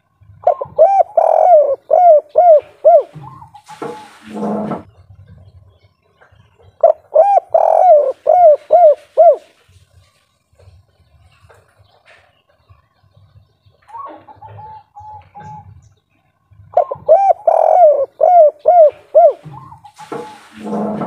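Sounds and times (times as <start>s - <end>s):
dove cooing: 0.3s - 4.9s, 6.8s - 9.5s, 13.9s - 15.8s, 16.7s - 21.0s.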